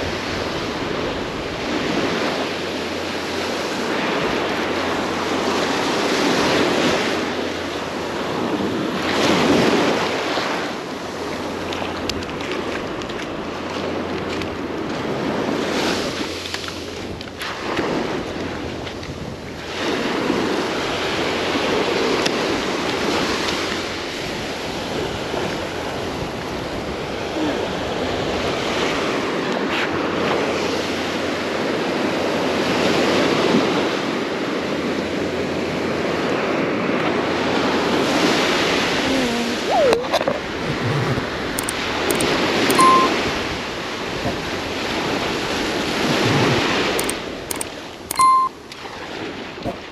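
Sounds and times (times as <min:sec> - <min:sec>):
ocean surf breaking on beach: 0:00.0 - 0:49.9
short beep: 0:41.6 - 0:43.3, 0:46.2 - 0:48.6.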